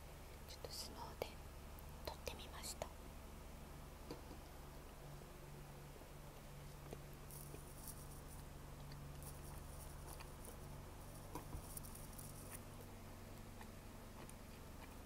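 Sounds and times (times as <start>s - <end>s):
low steady hum: 0.0s - 15.0s
chewing and mouth sounds: 6.7s - 15.0s.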